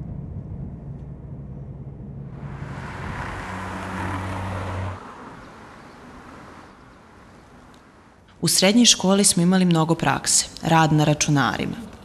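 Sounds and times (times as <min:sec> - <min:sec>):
car driving past: 0:01.7 - 0:08.2.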